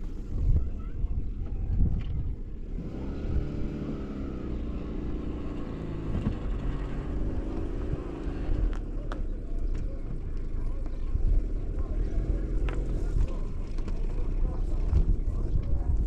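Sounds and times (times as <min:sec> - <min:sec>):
wind rumble on microphone: 0:00.0 - 0:03.8, 0:11.1 - 0:16.0
vehicle engine running: 0:00.0 - 0:16.0.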